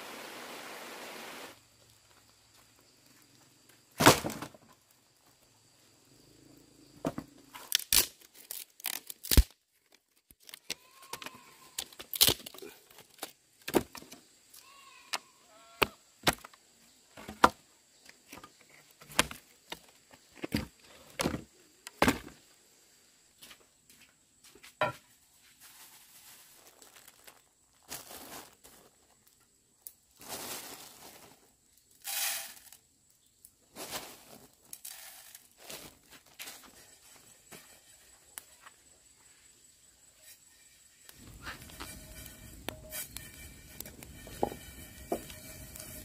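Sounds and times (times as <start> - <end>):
wood clattering onto dirt: 3.9 - 5.0, 7.0 - 22.4, 24.6 - 25.2, 34.0 - 38.8, 41.1 - 46.0
wood cracking and snapping: 7.6 - 14.1.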